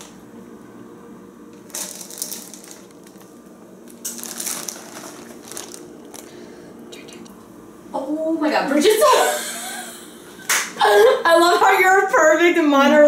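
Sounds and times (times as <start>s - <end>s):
plastic bag crinkling: 1.5s - 6.5s.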